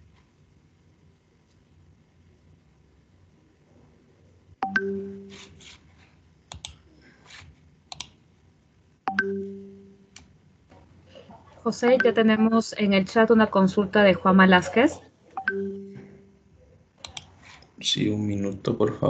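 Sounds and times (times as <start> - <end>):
sharp clicks: 7.9 - 8.2, 17.0 - 17.3.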